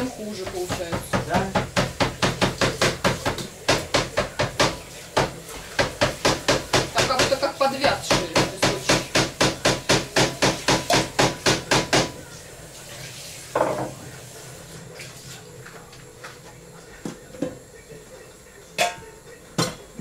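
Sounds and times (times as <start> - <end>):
dishes and utensils clattering: 13.4 - 17.6, 18.7 - 20.0.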